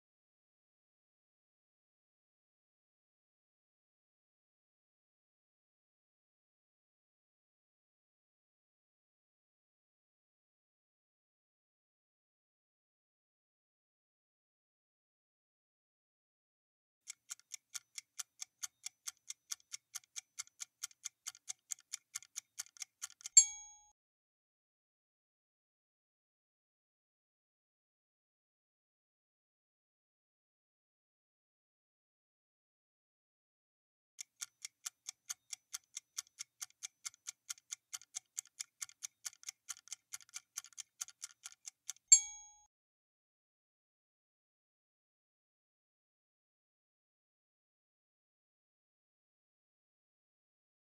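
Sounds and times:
fast clock ticks: 17.1 - 23.7, 34.2 - 42.6.

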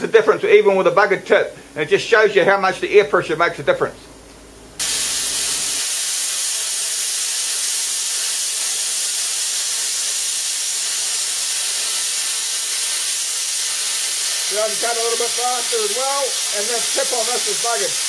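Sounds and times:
plasma cutter hissing: 4.8 - 18.0.

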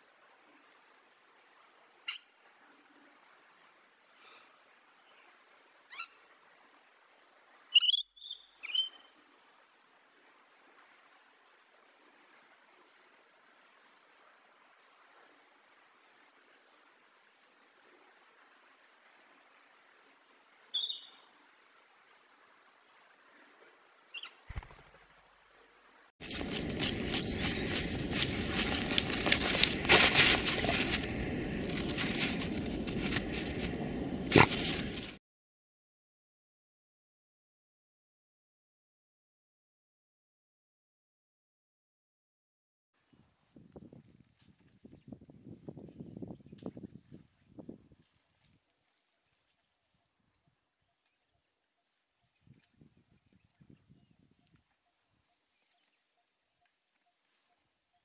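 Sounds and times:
dogs digging in snow and earth: 26.2 - 35.2.

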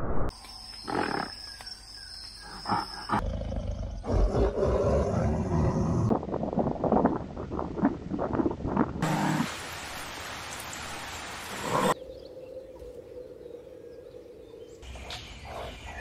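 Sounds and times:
lion roaring: 2.7 - 6.1.

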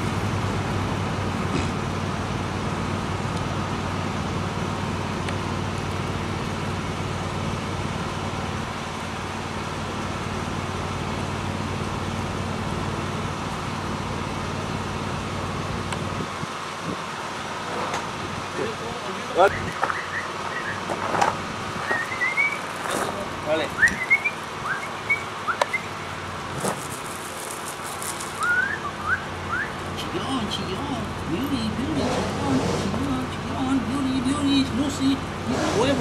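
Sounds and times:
background rumble and hiss: 0.0 - 36.0.

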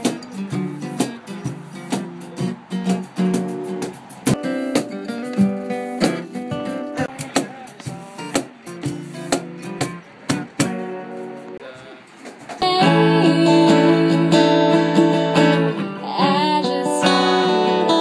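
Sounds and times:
cajon hits: 0.0 - 11.5
acoustic guitar playing: 0.0 - 18.0.

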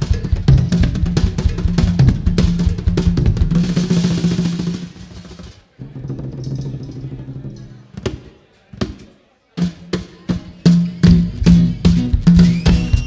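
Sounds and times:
rock band playing: 10.4 - 13.0.

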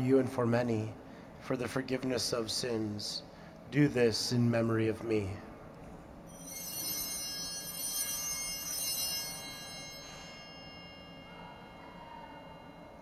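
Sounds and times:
altar bells ringing: 6.3 - 13.0.

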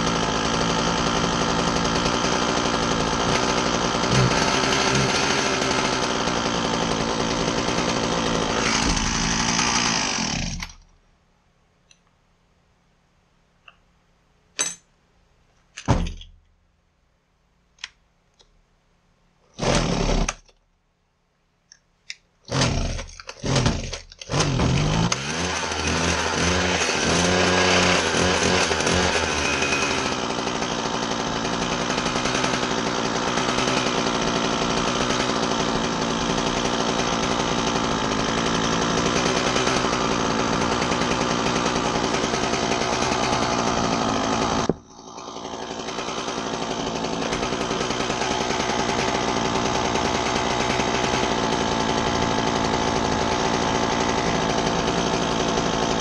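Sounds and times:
hedge trimmer engine running: 0.0 - 10.8, 19.6 - 20.4, 22.5 - 56.0
recoil starter pulls: 22.5 - 56.0.

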